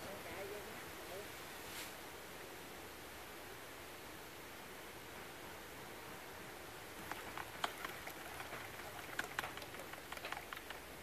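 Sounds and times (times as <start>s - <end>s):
faint steady hiss: 0.0s - 11.0s
light clicks and taps: 7.0s - 10.8s.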